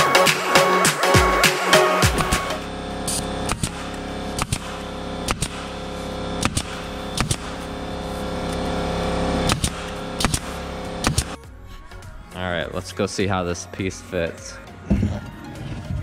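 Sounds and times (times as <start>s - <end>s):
steady hum: 0.0s - 14.7s
staple gun firing: 9.5s - 11.4s.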